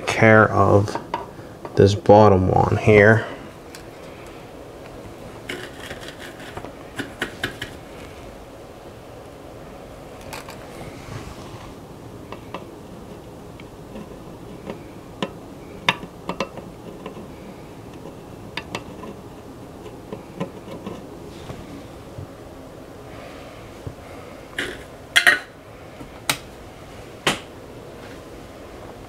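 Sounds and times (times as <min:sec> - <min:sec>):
low background hiss: 0:00.0 - 0:29.0
hand tools clicking and tapping: 0:05.5 - 0:07.8, 0:13.9 - 0:17.3, 0:17.9 - 0:19.2, 0:24.6 - 0:25.5.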